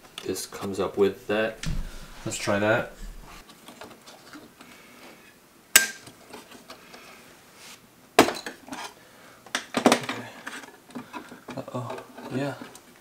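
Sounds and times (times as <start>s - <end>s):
faint handling sounds: 0.0s - 5.2s.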